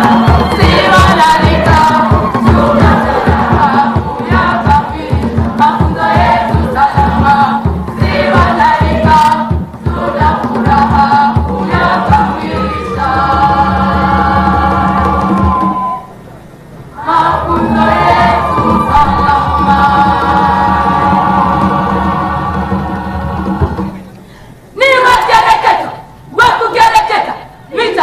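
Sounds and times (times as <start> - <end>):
steady drum beat: 0.0 - 15.9, 17.1 - 24.1
large choir singing: 0.0 - 16.1, 17.0 - 24.1.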